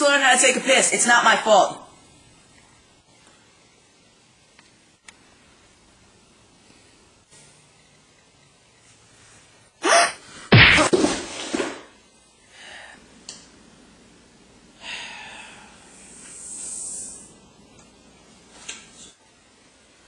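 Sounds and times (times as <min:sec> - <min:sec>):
heavy thud: 0:10.5 - 0:11.9.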